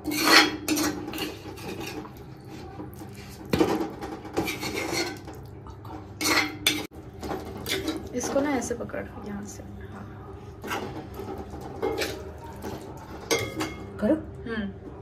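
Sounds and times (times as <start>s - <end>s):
metal spoon scraping cookware: 0.0s - 2.2s, 4.4s - 5.2s.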